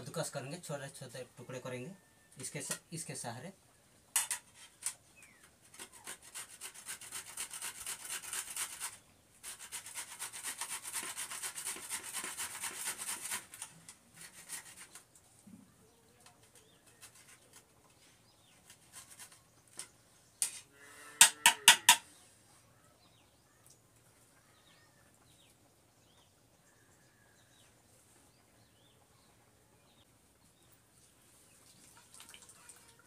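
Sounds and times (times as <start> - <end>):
grater rasping: 5.8 - 15.0
sharp knocks: 21.2 - 22.0.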